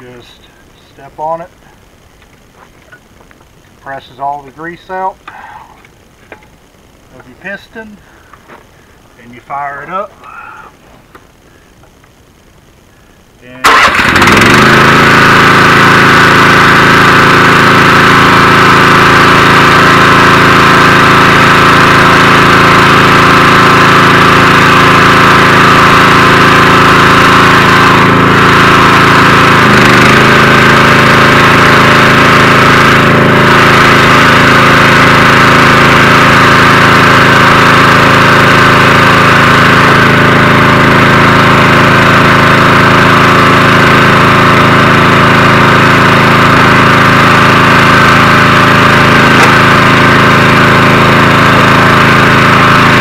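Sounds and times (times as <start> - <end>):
engine running loudly: 13.6 - 53.0.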